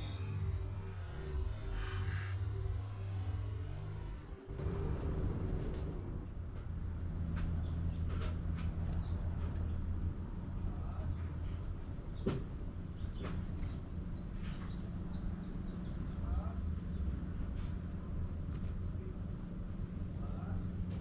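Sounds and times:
low background rumble: 0:00.0 - 0:21.0
bird chirps: 0:07.5 - 0:07.8, 0:09.0 - 0:09.4, 0:13.0 - 0:16.2.

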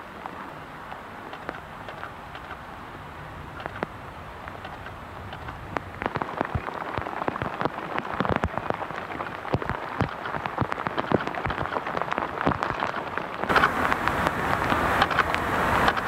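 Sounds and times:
rain falling: 0:00.0 - 0:16.0
raindrops tapping near microphone: 0:00.0 - 0:16.0
loud steady noise: 0:13.4 - 0:16.0.

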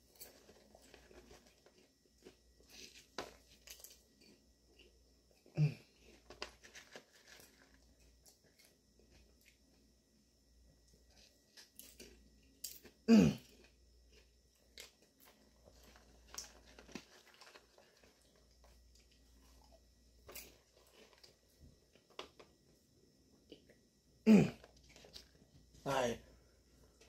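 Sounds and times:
person chewing popcorn: 0:00.0 - 0:09.9, 0:10.8 - 0:27.0
person grunting: 0:13.1 - 0:13.4, 0:24.2 - 0:24.6.

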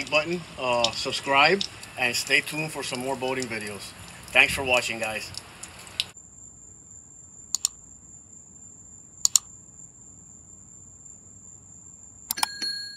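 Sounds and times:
computer mouse clicks: 0:07.5 - 0:07.8, 0:09.2 - 0:09.5, 0:12.3 - 0:12.5.

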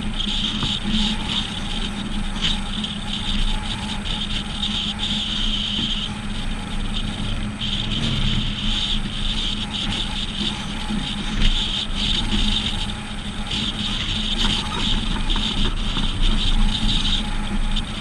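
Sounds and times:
low hum: 0:00.0 - 0:18.0
road and wind noise: 0:00.0 - 0:18.0.

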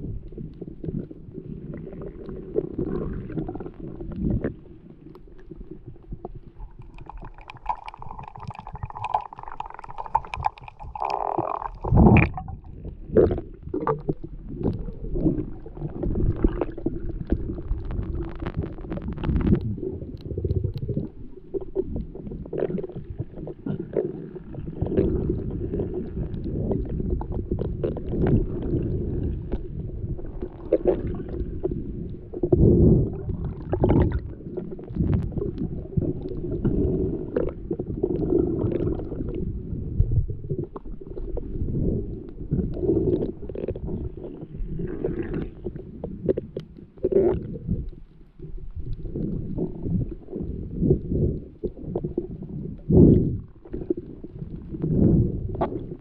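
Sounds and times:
muffled underwater rumble: 0:00.0 - 0:56.0
clicks and crackles: 0:00.2 - 0:32.6, 0:33.3 - 0:39.4, 0:42.2 - 0:56.0
loud underwater burst: 0:07.1 - 0:12.7.

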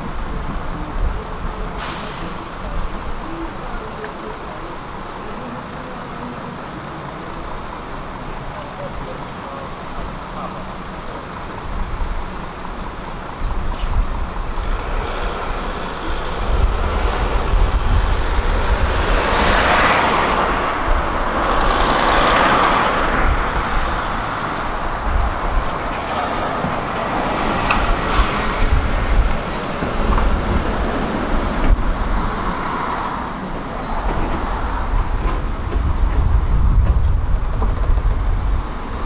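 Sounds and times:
tram approaching: 0:00.0 - 0:39.0
cars driving past: 0:13.8 - 0:36.1.

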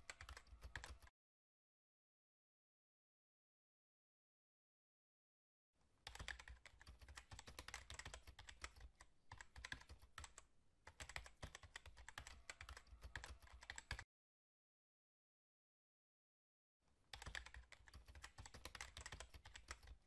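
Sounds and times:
computer keyboard typing: 0:00.0 - 0:01.1, 0:06.0 - 0:14.1, 0:17.1 - 0:20.0.

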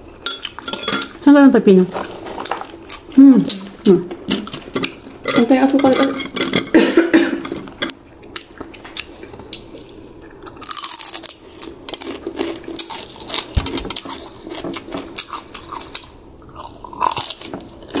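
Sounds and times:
chewing crispy chicken skin: 0:02.1 - 0:05.0, 0:08.1 - 0:18.0.

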